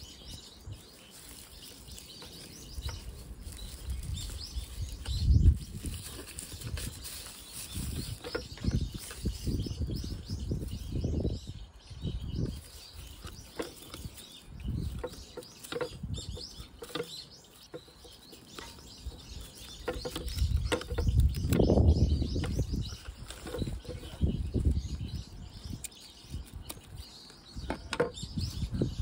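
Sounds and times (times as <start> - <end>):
birds chirping faintly: 0.0 - 29.0
hands handling plant in plastic pot: 0.8 - 9.6, 22.3 - 24.7.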